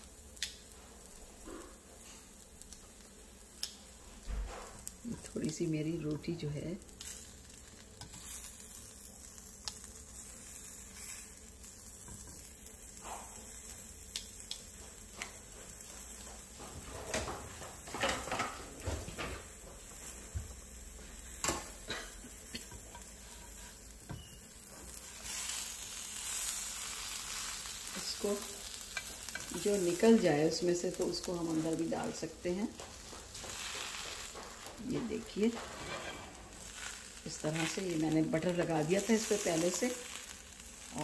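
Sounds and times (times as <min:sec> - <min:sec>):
food sizzling in a frying pan: 0:00.0 - 0:41.0
metal spatula scraping a pan: 0:22.6 - 0:24.4, 0:35.4 - 0:37.2.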